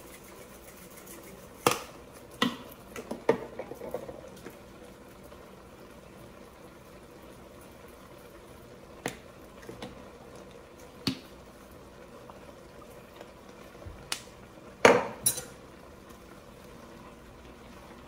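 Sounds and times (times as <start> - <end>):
bottles knocking on countertop: 14.8 - 15.2.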